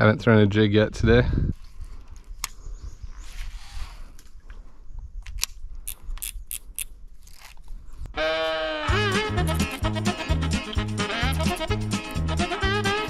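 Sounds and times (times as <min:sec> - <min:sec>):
fishing tackle clicks and snips: 0:05.2 - 0:07.7
music: 0:08.8 - 0:13.0.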